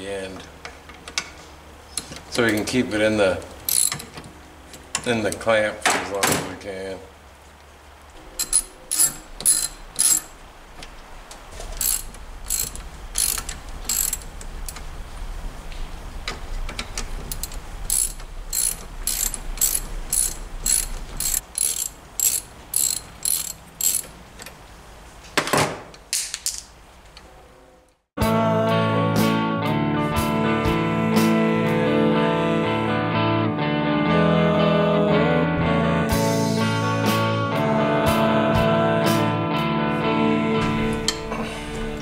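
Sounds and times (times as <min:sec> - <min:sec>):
ratchet wrench clicking: 0:03.7 - 0:04.2, 0:08.4 - 0:10.3, 0:11.8 - 0:14.8, 0:17.3 - 0:24.2.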